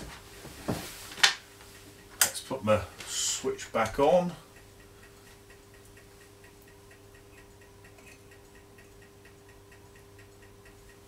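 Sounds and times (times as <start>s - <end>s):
low steady hum: 0.0s - 11.0s
faint even ticking: 1.7s - 11.0s.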